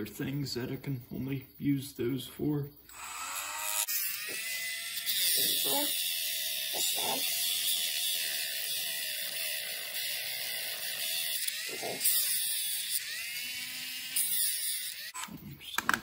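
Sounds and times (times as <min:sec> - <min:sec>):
rotary tool high whine: 0:02.9 - 0:15.2.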